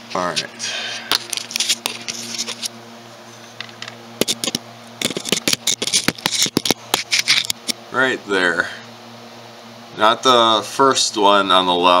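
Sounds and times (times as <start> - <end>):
steady low hum: 0.0 - 12.0
clicks taps and scrapes: 3.6 - 7.8.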